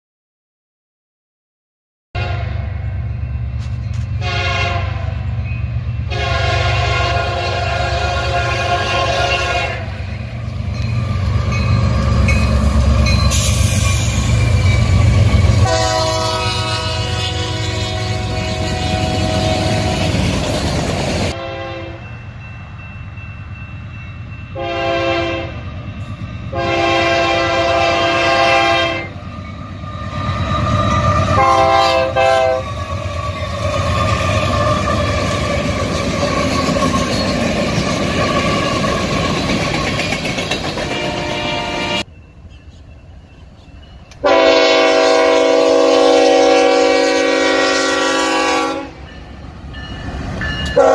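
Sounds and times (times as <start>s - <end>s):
locomotive air horn blasts: 2.2s - 2.7s, 4.2s - 5.2s, 6.1s - 10.0s, 15.5s - 20.2s, 21.3s - 22.1s, 24.6s - 25.6s, 26.5s - 29.2s, 31.1s - 32.8s, 40.9s - 42.1s, 44.2s - 49.1s
train passing low rumble: 2.2s - 50.9s.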